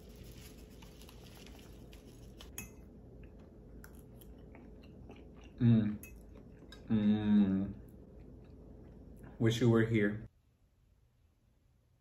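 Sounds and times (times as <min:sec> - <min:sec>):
fork clinking on ceramic bowl: 0:02.5 - 0:02.9, 0:05.9 - 0:06.8.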